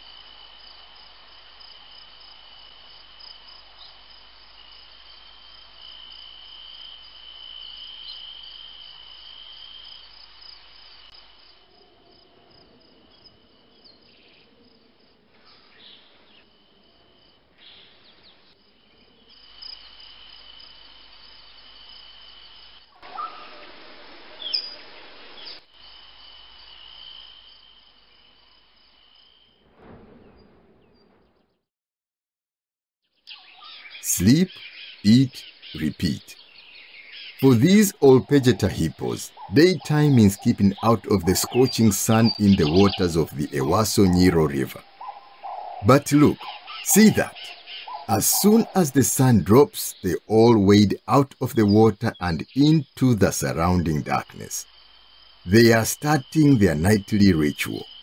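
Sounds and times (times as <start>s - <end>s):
insects trilling: 0.0s - 29.7s, 33.2s - 58.0s
sharp animal calls: 23.0s - 23.6s, 37.2s - 54.6s.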